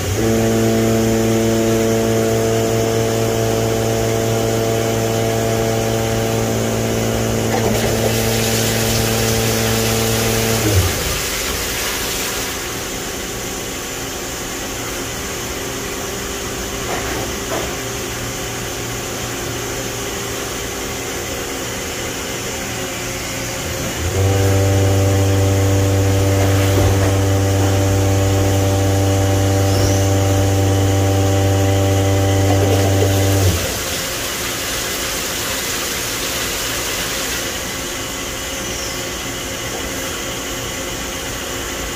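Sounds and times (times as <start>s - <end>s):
machine spindle humming: 0.0s - 11.8s, 20.3s - 34.6s
steady machine hum: 0.0s - 41.9s.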